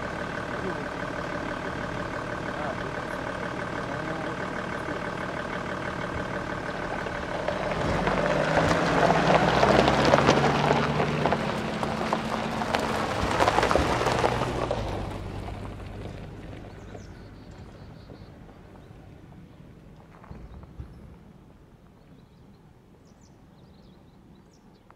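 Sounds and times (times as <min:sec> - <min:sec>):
vehicle passing by: 0:00.0 - 0:19.5.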